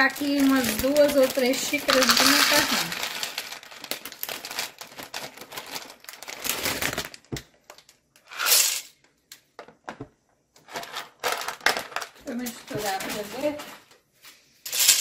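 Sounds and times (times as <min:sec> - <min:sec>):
pasta poured into pot: 0:00.0 - 0:07.0
dry pasta rattling and clicking: 0:00.0 - 0:08.3.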